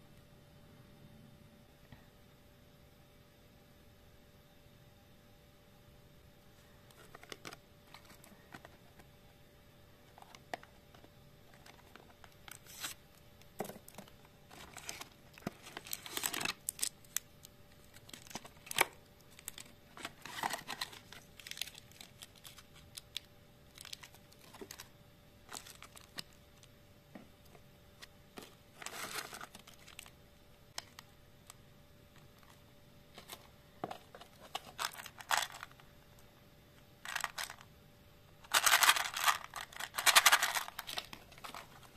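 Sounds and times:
packaging clicks: 0:10.1 - 0:24.9, 0:33.2 - 0:35.8, 0:38.5 - 0:41.8
wrappers crinkling: 0:13.6 - 0:24.9, 0:25.5 - 0:26.7, 0:28.4 - 0:30.1, 0:34.3 - 0:35.8, 0:38.5 - 0:41.9.

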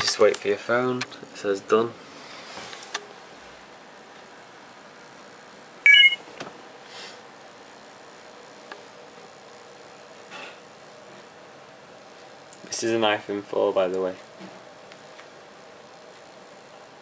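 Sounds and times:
faint room hiss: 0:00.0 - 0:17.0
loud electronic beep: 0:05.9 - 0:06.2.

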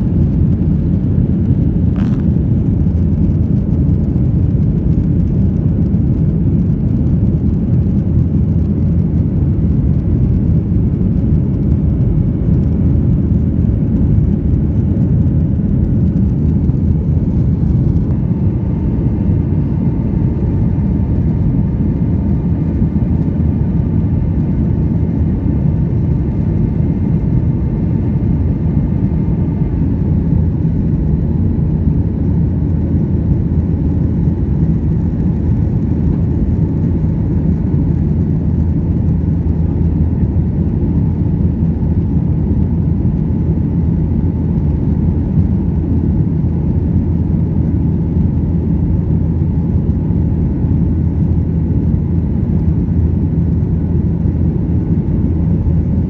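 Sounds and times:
jet engine cabin rumble: 0:00.0 - 0:56.0.

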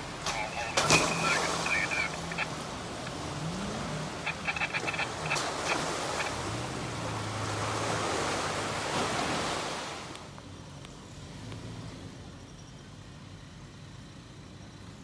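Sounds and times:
truck engine running: 0:00.0 - 0:07.5
muddy water splashing: 0:00.0 - 0:09.9.

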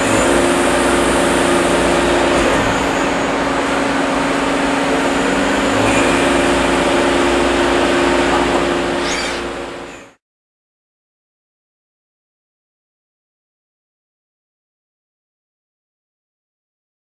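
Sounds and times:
lathe machine hum: 0:00.0 - 0:10.2.

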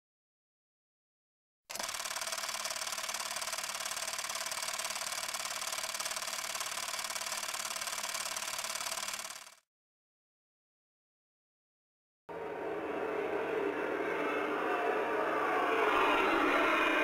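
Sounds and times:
film projector clatter and whirr: 0:01.7 - 0:09.6.

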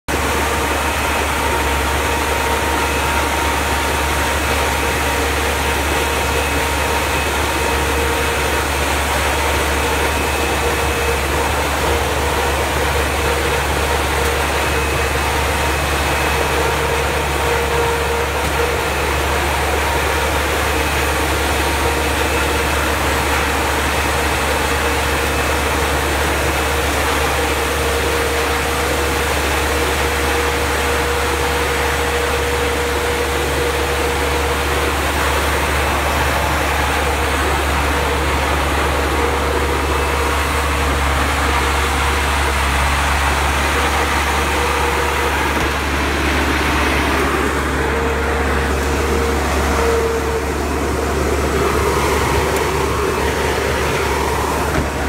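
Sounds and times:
tractor engine drone: 0:00.0 - 0:55.0
fan whine: 0:00.1 - 0:55.0.

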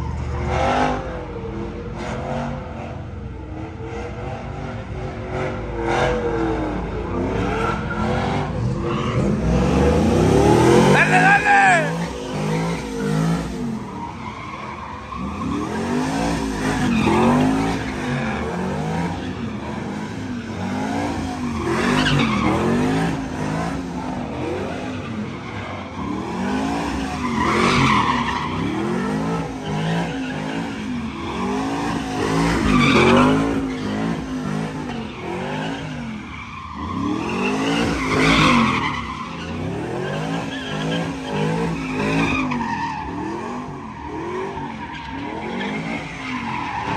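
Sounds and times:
truck engine revving: 0:03.5 - 0:36.1
tyres squealing on pavement: 0:07.1 - 0:46.9.

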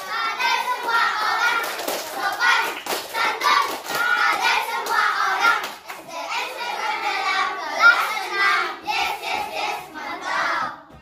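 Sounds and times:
hands clapping: 0:00.0 - 0:06.1
children chanting in unison: 0:00.0 - 0:10.9.

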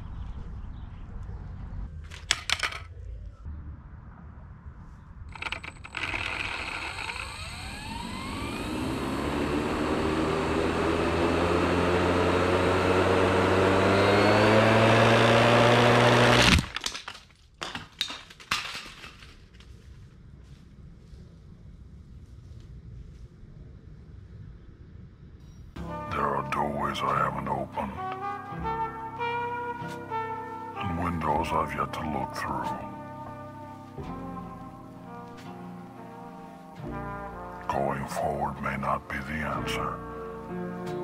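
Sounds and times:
pieces clattering: 0:02.1 - 0:02.9, 0:16.6 - 0:19.6
spinning weapon whine: 0:05.3 - 0:16.7.

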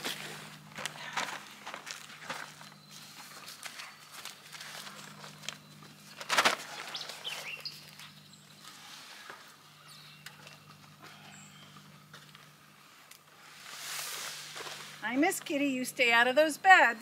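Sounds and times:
cover rustling and crinkling: 0:00.0 - 0:07.3
birds chirping: 0:00.5 - 0:12.8.

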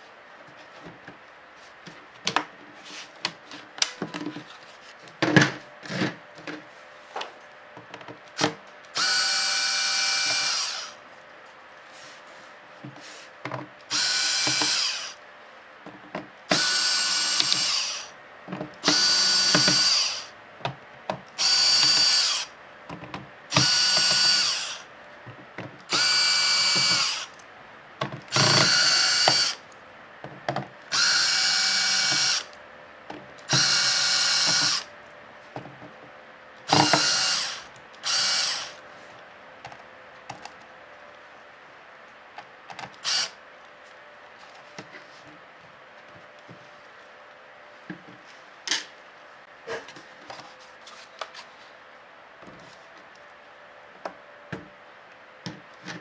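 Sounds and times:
electric screwdriver whirring: 0:08.4 - 0:11.0, 0:13.9 - 0:15.2, 0:16.5 - 0:18.1, 0:18.8 - 0:20.3, 0:21.4 - 0:22.5, 0:23.5 - 0:24.8, 0:25.9 - 0:27.4, 0:28.3 - 0:29.6, 0:30.9 - 0:32.5, 0:33.5 - 0:34.9, 0:36.7 - 0:38.8, 0:43.0 - 0:43.4.

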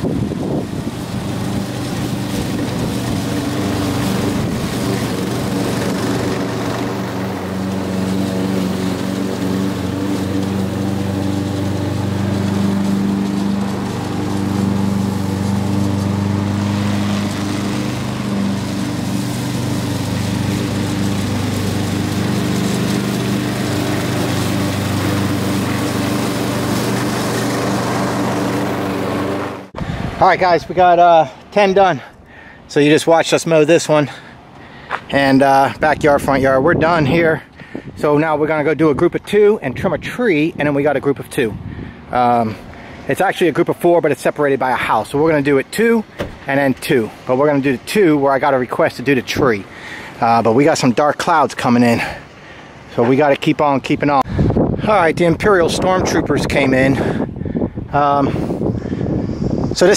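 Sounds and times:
push mower engine running: 0:00.0 - 0:59.9.

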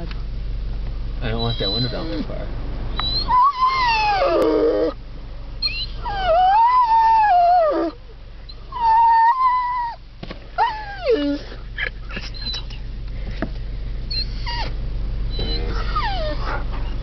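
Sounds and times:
dog howling: 0:01.4 - 0:02.3, 0:03.0 - 0:05.0, 0:05.6 - 0:08.0, 0:08.7 - 0:10.0, 0:15.3 - 0:17.0.

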